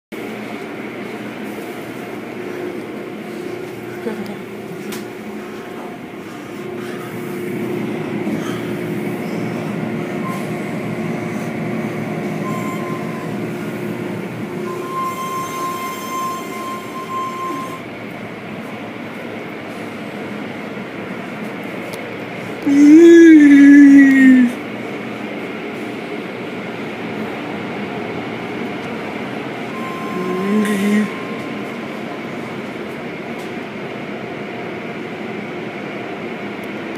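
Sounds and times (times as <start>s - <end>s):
car wash machinery rumbling: 0.1s - 36.9s
high mechanical whine: 0.2s - 36.9s
wavering pitched sound: 12.4s - 17.9s, 29.6s - 32.3s.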